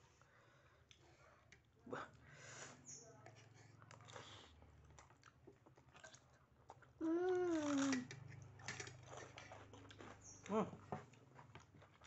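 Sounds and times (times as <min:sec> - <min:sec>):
chewing and biting: 0:07.6 - 0:12.0.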